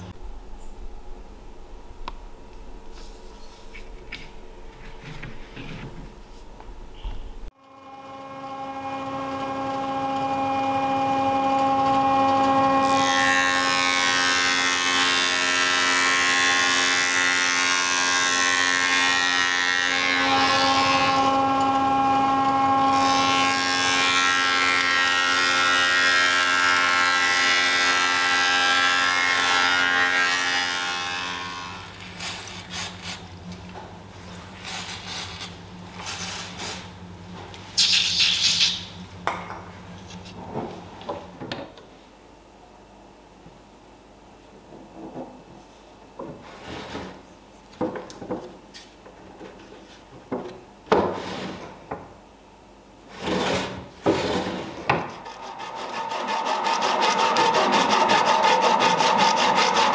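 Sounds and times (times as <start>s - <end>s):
planer-thicknesser whining: 7.6s - 37.1s, 53.2s - 59.9s.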